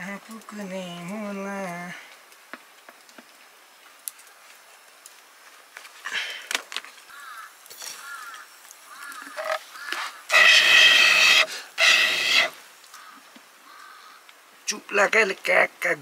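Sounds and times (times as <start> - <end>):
animal calling: 7.1 - 14.2.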